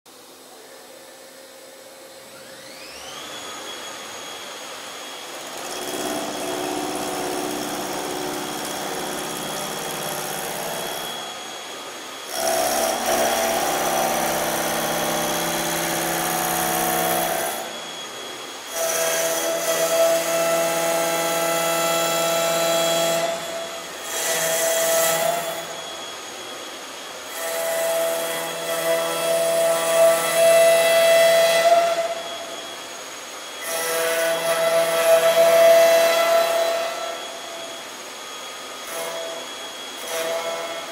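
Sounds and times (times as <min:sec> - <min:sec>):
spindle motor whining: 0:02.1 - 0:29.8
router cutting wood: 0:02.3 - 0:40.9.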